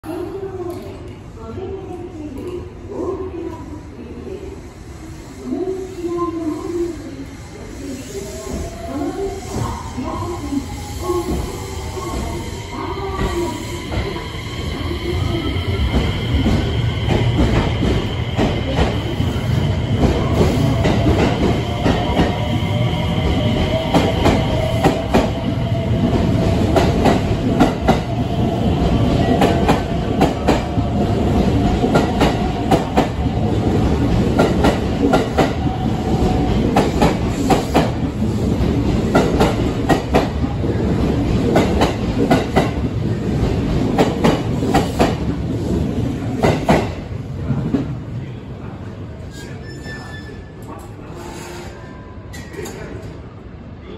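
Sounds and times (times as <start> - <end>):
electric train passing: 5.0 - 45.8.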